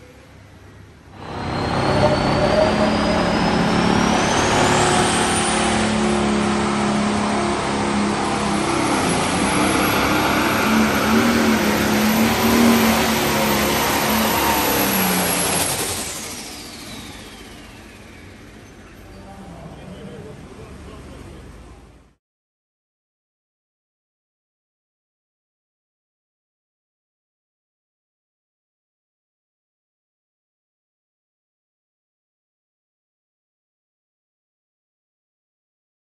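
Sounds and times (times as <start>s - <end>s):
diesel engine with climbing whine: 0.0s - 22.2s.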